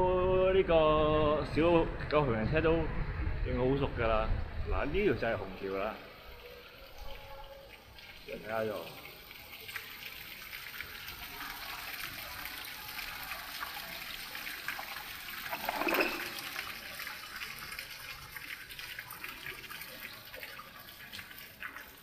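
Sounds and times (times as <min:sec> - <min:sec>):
water feature splashing: 0:05.2 - 0:22.0.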